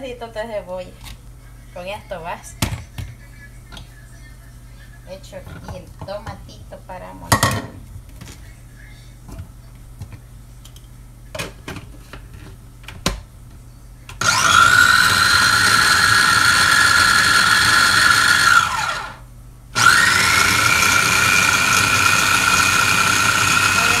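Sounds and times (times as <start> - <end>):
food chopper clicks: 14.2 - 19.1, 19.8 - 24.0
food chopper motor whirring: 14.2 - 19.2, 19.8 - 24.0.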